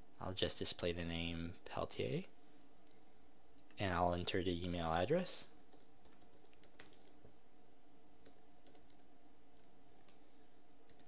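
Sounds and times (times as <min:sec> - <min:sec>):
steady low hum: 0:00.0 - 0:11.0
typing on laptop keyboard: 0:05.7 - 0:07.3, 0:08.2 - 0:10.2.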